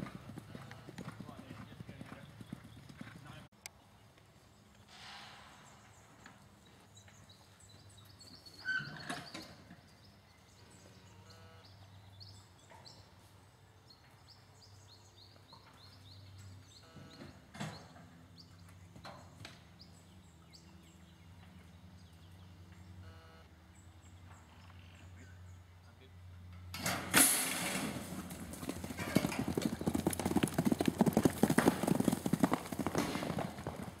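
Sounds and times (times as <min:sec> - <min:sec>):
horse hoofbeats on dirt track: 0:00.0 - 0:03.5, 0:27.8 - 0:34.0.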